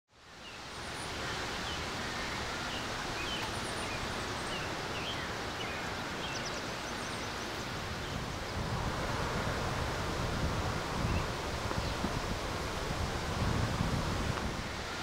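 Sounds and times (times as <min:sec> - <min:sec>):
small birds chirping: 0:00.4 - 0:08.6.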